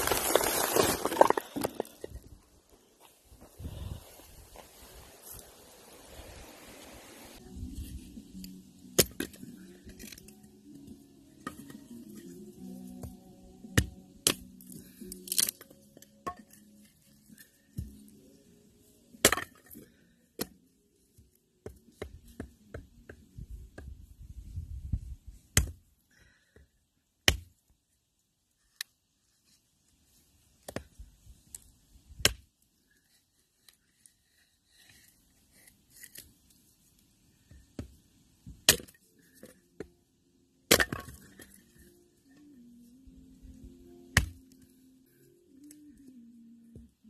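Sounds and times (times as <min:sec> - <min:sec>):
hatchet chopping log: 0:25.6 - 0:25.8, 0:27.2 - 0:27.5, 0:38.5 - 0:39.0, 0:44.2 - 0:44.4.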